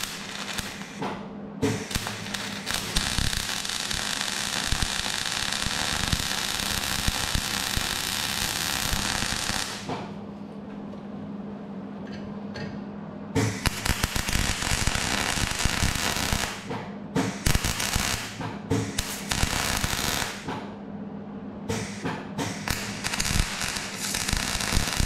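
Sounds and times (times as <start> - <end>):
welding arc crackling: 0.0 - 1.0, 1.7 - 9.9, 13.4 - 16.7, 17.3 - 20.5, 22.5 - 25.0
low steady hum: 0.0 - 25.0.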